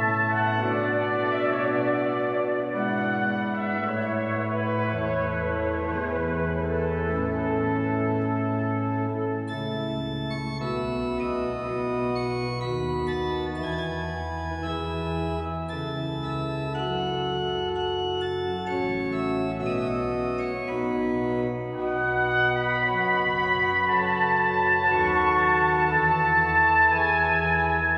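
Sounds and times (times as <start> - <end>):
pipe organ chords: 0.0 - 27.9
trumpet: 0.0 - 27.9.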